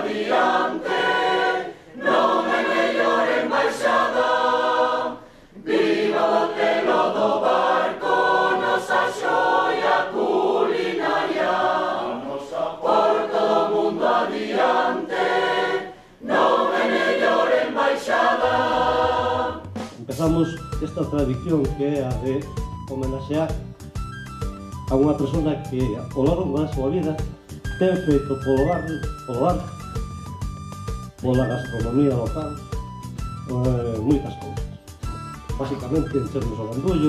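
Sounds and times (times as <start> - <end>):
mixed choir singing: 0.0 - 19.8.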